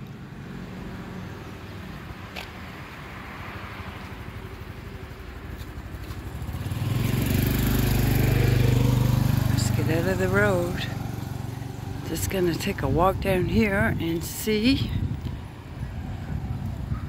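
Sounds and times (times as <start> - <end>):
motor scooter engine humming: 4.2 - 17.0.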